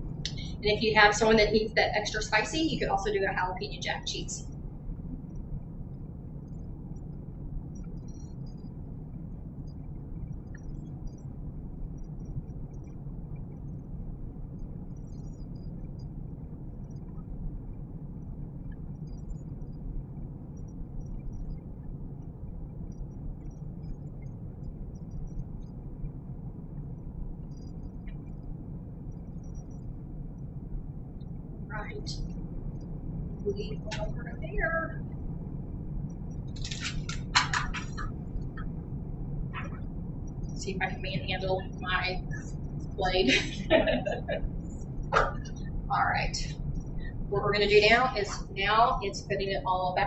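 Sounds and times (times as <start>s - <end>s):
low rumble: 0.0s - 50.0s.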